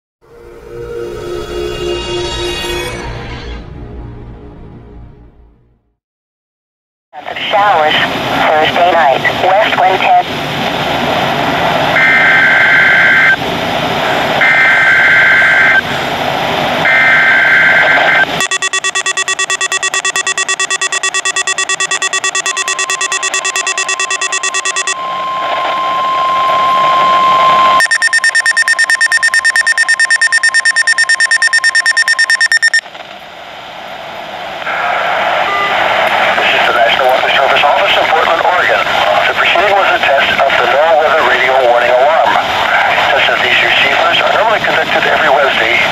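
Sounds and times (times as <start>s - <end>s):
broadcast voice: 7.2s - 10.3s, 36.3s - 45.9s
radio static: 7.2s - 10.3s, 12.0s - 13.4s, 14.4s - 15.8s, 16.8s - 25.0s, 34.6s - 45.9s
fast-pulsing alarm: 12.0s - 13.4s, 14.4s - 15.8s, 16.8s - 32.8s
screechy data tones: 12.0s - 13.4s, 16.9s - 25.0s, 26.2s - 32.8s
buzzing electronic alert: 16.9s - 25.0s, 27.8s - 32.8s
steady alert tone: 18.4s - 25.1s, 27.8s - 32.8s.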